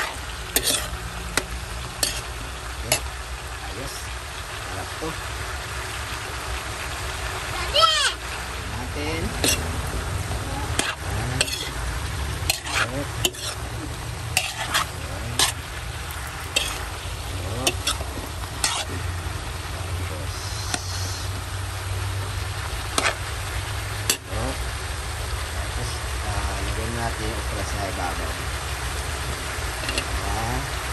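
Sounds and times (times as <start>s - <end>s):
metal spoon scraping a wok: 0.0s - 3.1s, 9.2s - 10.0s, 10.7s - 21.4s, 22.9s - 23.3s, 24.0s - 24.4s, 29.7s - 30.2s
food sizzling in a wok: 0.0s - 30.9s.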